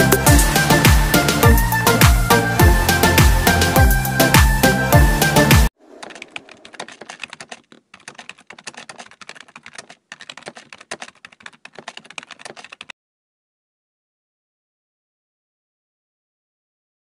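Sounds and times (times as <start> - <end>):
background music: 0.0 - 5.7
keyboard typing: 5.8 - 12.9.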